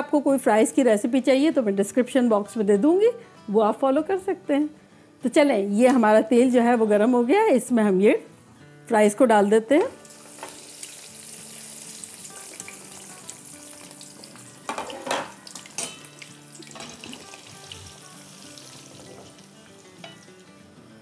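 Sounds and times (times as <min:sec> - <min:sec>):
fries sizzling in hot oil: 0:09.9 - 0:20.6.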